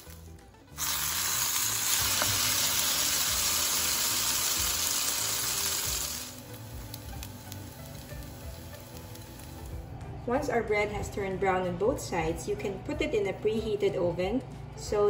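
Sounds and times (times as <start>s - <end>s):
butter and oil sizzling: 0.0s - 9.8s.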